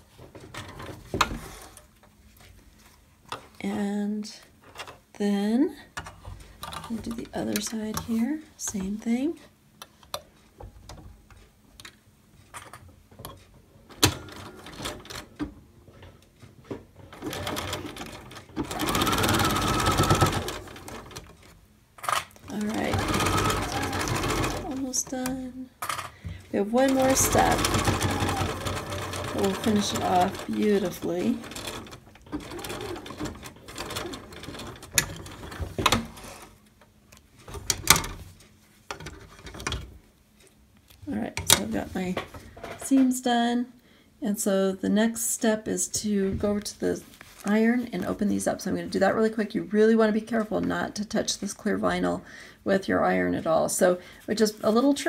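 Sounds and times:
sewing machine stitching: 17.1s - 21.5s, 22.4s - 25.5s, 26.6s - 36.5s
sewing machine clicks: 22.4s - 25.2s, 26.8s - 36.2s.

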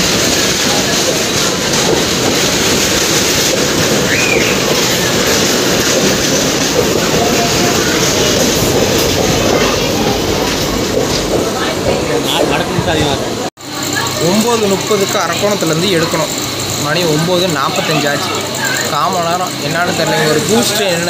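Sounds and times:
train wheels clattering over rails: 0.0s - 21.0s
high squeal: 3.9s - 5.6s.

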